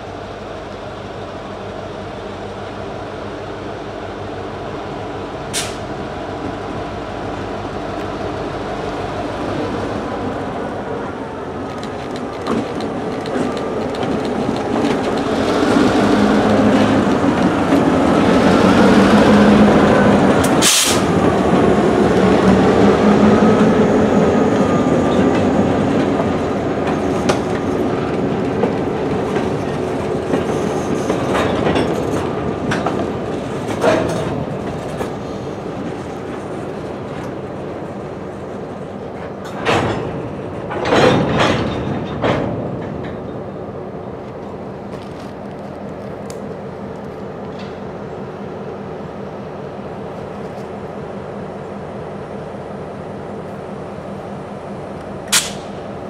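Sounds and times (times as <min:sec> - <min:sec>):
diesel locomotive rumbling: 0:00.0 - 0:56.0
clickety-clack of train wheels: 0:11.5 - 0:43.6, 0:44.2 - 0:48.0, 0:55.0 - 0:56.0
sharp bang: 0:55.3 - 0:55.8.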